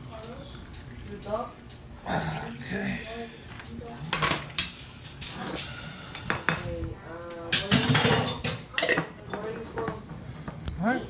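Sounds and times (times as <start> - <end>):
utensils and dishes clinking: 4.1 - 10.4.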